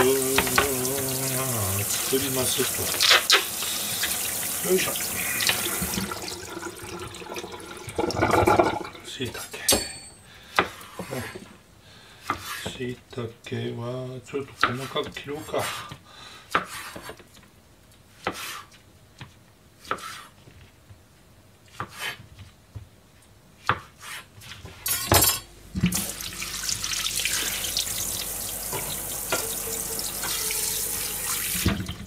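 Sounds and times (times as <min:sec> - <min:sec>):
tap water running into pan: 0:00.0 - 0:09.1, 0:24.9 - 0:32.0.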